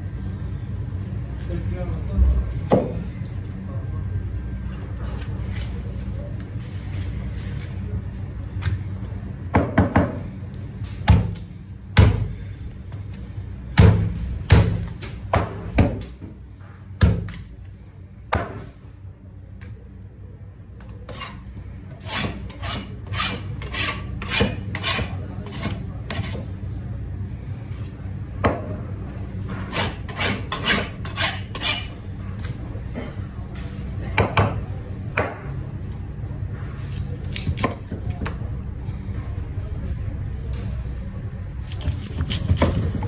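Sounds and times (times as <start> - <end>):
low steady hum: 0.0 - 43.0
blade scraping across board: 21.1 - 21.4, 22.0 - 26.4, 29.6 - 31.9
knife cutting on a board: 22.0 - 26.4.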